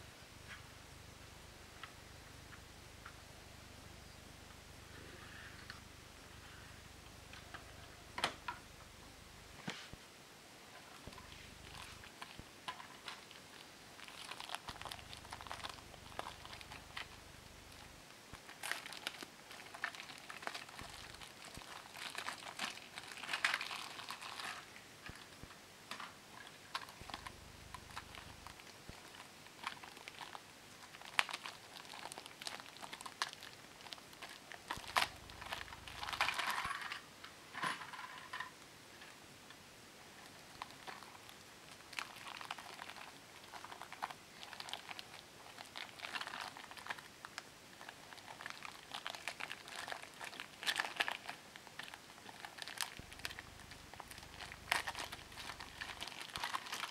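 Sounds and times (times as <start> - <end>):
plastic bags crinkling: 10.9 - 25.4, 26.0 - 37.0, 40.2 - 56.9
plastic toy cars clicking: 17.8 - 37.0, 40.5 - 56.9.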